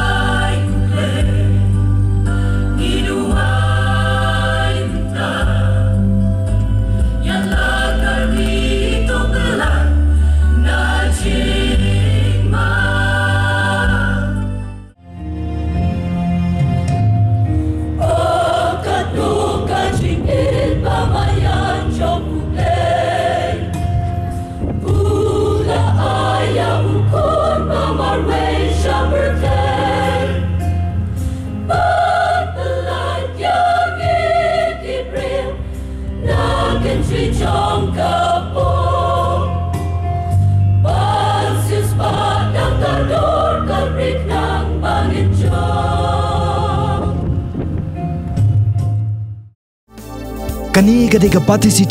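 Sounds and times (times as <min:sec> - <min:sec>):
women's choir singing a hymn: 0:00.0 - 0:06.2, 0:07.0 - 0:14.9, 0:17.9 - 0:47.6
low musical accompaniment: 0:00.0 - 0:45.9, 0:50.0 - 0:51.9.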